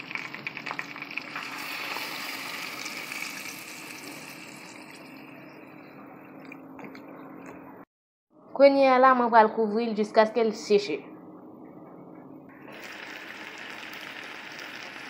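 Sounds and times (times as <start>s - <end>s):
water pouring and splashing: 0.0s - 5.0s.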